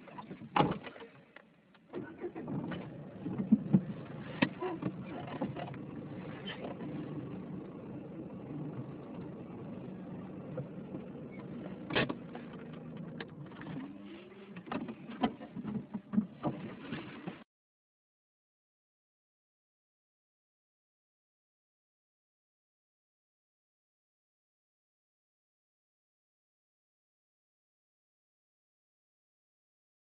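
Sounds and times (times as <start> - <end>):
vehicle engine idling hum: 1.5 - 16.4.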